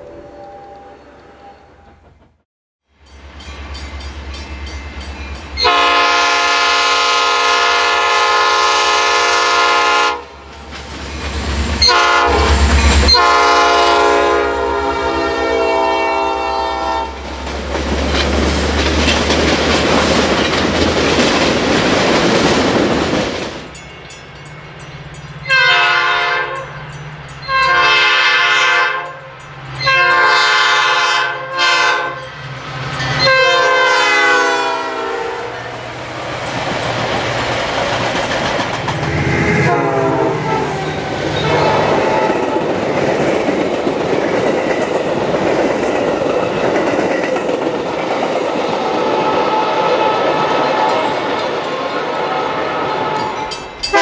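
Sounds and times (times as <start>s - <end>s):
train cars rumbling past: 0.0s - 54.0s
train air horn blasts: 5.6s - 10.4s, 11.8s - 17.2s, 25.5s - 26.8s, 27.5s - 32.4s, 33.2s - 35.8s, 39.1s - 42.7s, 49.0s - 51.4s, 52.1s - 54.0s.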